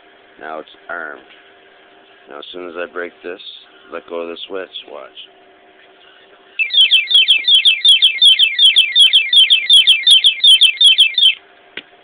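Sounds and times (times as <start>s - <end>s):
electronic alarm siren chirping: 6.6s - 11.4s.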